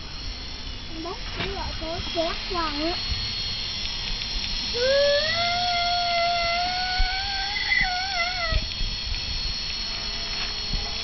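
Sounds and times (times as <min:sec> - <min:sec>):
quadcopter motors whining: 0:00.0 - 0:11.0
animal howl: 0:04.7 - 0:08.7.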